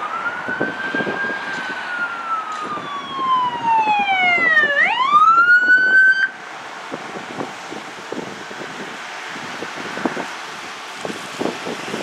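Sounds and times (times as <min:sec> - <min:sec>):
ambulance siren wailing: 0:00.0 - 0:06.4.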